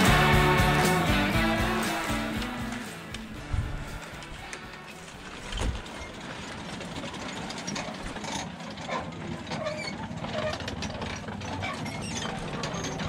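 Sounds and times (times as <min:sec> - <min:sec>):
metal prayer wheels rattling: 0:02.7 - 0:13.0
short squeaks: 0:11.4 - 0:13.0.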